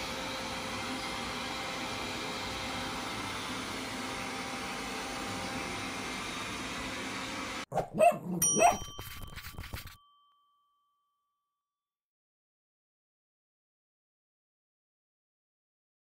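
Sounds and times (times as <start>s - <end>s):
robot vacuum cleaner whirring: 0.0s - 7.7s
cartoon dog barks: 7.7s - 8.9s
bell-like ding: 8.4s - 11.6s.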